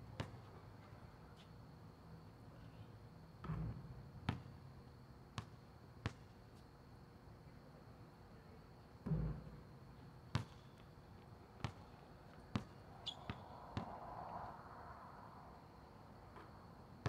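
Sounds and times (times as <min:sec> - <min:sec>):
basketball bouncing on asphalt: 0:00.2 - 0:00.5, 0:03.4 - 0:04.6, 0:05.4 - 0:06.3, 0:09.0 - 0:09.5, 0:10.3 - 0:10.8, 0:11.6 - 0:13.9
high shoe squeak: 0:13.0 - 0:13.4.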